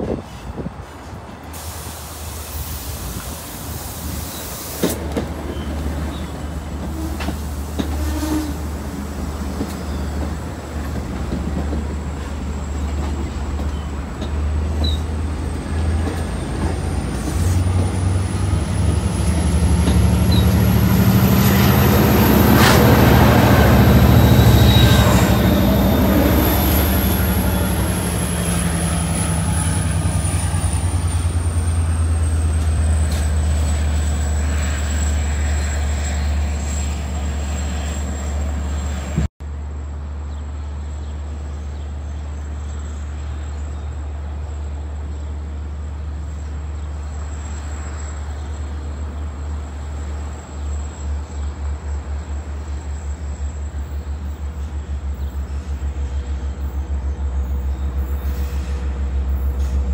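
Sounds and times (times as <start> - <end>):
diesel locomotive engine: 0.0 - 59.9
train rolling past: 0.0 - 59.9
high squeal: 19.2 - 39.2.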